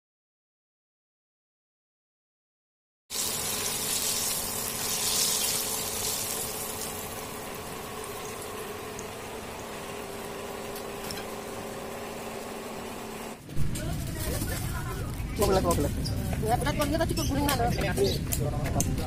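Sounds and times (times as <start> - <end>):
hot oil sizzling in a frying pan: 3.1 - 11.3.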